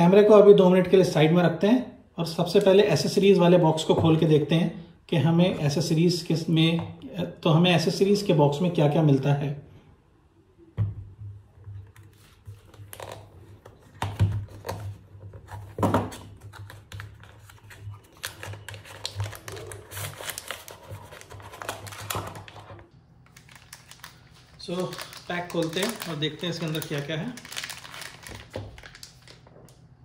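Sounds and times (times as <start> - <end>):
cardboard and plastic packaging crinkles: 14.4 - 29.7.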